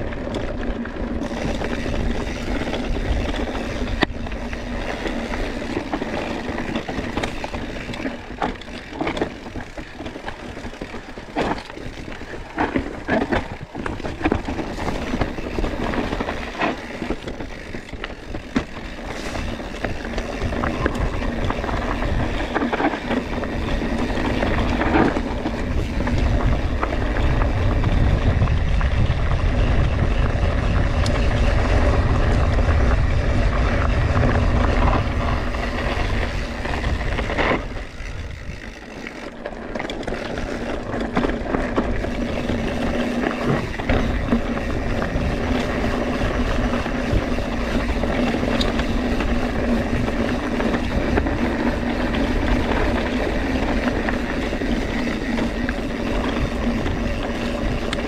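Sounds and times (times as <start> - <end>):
bike knocking and rattling: 0.0 - 58.0
bike tyres on dirt: 0.0 - 58.0
wind rumble on microphone: 0.0 - 58.0.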